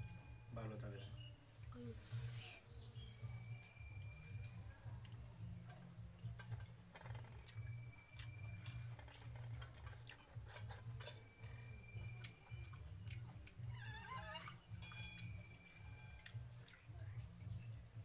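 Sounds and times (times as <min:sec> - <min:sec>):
low steady hum: 0:00.0 - 0:18.0
fingers mixing rice in steel bowls: 0:02.0 - 0:13.6
chewing: 0:03.0 - 0:17.8.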